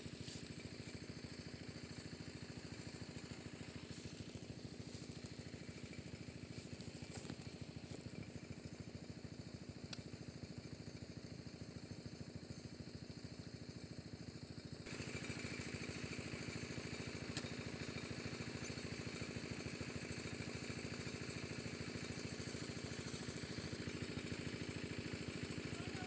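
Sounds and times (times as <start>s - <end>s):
small engine running: 0.0s - 26.0s.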